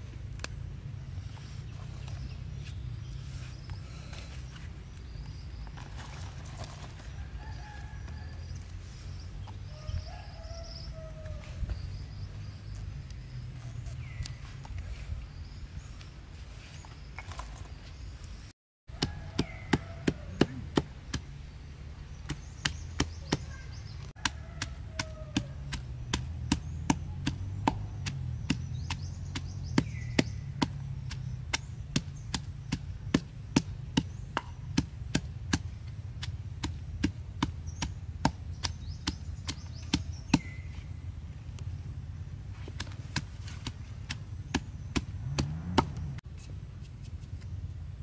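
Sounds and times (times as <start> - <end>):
pestle pounding in a mortar: 19.0 - 21.3, 24.2 - 40.6.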